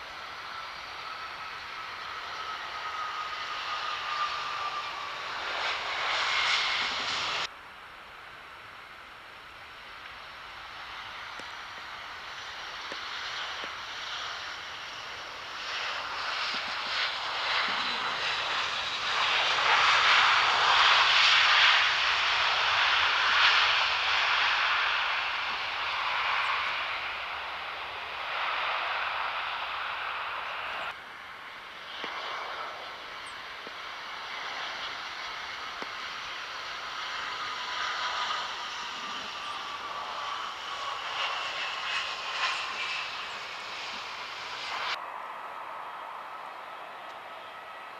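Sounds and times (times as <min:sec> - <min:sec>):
jet engines rushing: 0:00.0 - 0:07.5, 0:08.1 - 0:47.9.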